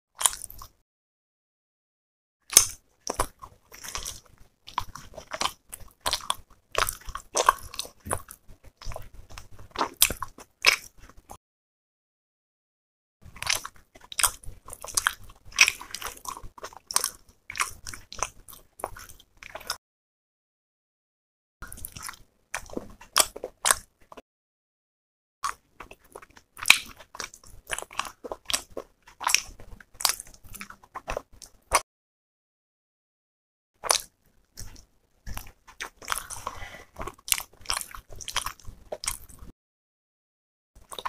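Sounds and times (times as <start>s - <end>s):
chewing and wet mouth sounds: 0.2s - 0.8s, 2.4s - 11.4s, 13.2s - 19.8s, 21.6s - 24.2s, 25.4s - 31.8s, 33.8s - 39.5s, 40.8s - 41.0s.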